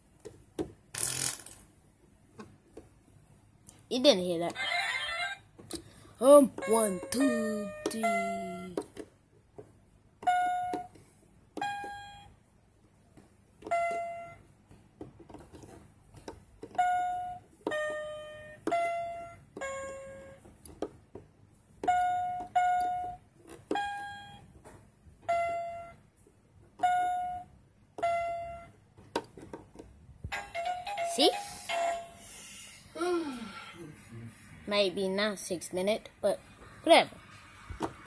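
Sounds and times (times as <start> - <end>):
toy keypad beeping: 6.6 - 8.8, 10.2 - 11.0, 11.6 - 12.3, 13.6 - 14.4, 16.8 - 20.4, 21.8 - 24.5, 25.3 - 26.0, 26.8 - 28.8.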